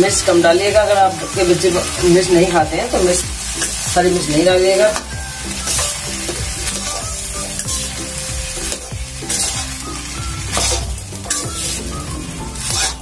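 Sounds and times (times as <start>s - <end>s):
oil frying and sizzling: 0.0s - 13.0s
spatula scraping metal pan: 3.0s - 13.0s.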